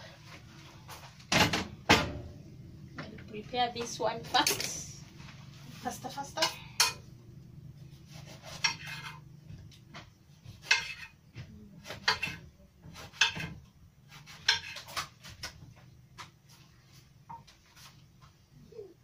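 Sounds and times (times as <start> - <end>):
knife chopping on stone countertop: 10.5 - 11.2, 11.8 - 15.4.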